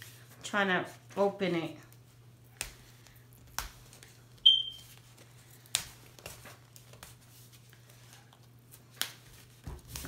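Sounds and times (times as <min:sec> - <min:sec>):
plastic wrap crinkling: 0:01.9 - 0:10.0
high electronic beep: 0:04.5 - 0:04.8.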